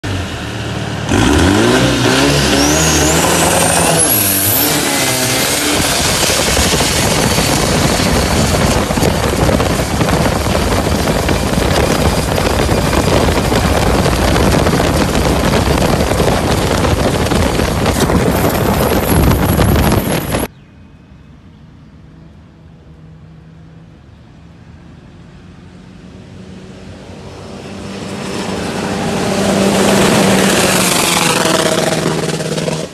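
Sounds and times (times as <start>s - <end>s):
boat engine revving: 1.1s - 20.5s.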